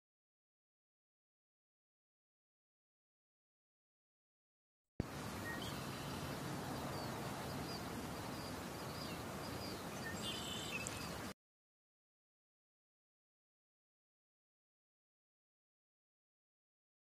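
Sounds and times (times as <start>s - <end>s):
steady background hiss: 5.0s - 11.3s
faint high bird chirps: 5.4s - 11.3s.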